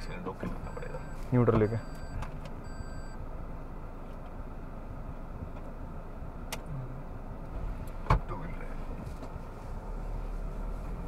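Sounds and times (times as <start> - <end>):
diesel engine running: 0.0 - 11.0
short electronic beep: 0.7 - 3.2.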